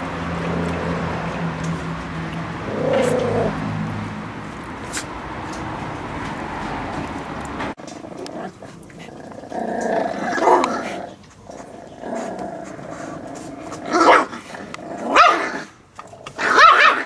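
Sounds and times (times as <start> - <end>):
puppies growling: 0.3 - 4.8, 7.8 - 17.0
puppy yapping: 15.1 - 15.7, 16.4 - 17.0.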